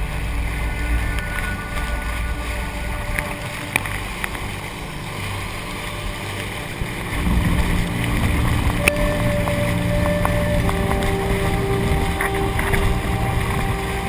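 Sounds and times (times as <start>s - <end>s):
boat engine drone: 0.0s - 14.0s
spray and wind rushing: 0.0s - 14.0s.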